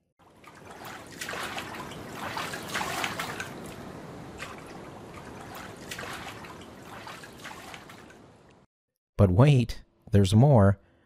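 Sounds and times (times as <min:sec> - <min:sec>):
ocean waves washing: 0:00.2 - 0:08.7
water splashing: 0:00.2 - 0:08.7.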